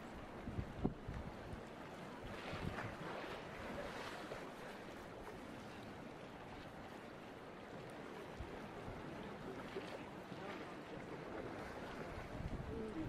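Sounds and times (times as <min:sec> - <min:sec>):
sea water rushing: 0:00.0 - 0:13.0
wind buffeting microphone: 0:00.4 - 0:01.7, 0:02.3 - 0:03.2, 0:11.9 - 0:13.0.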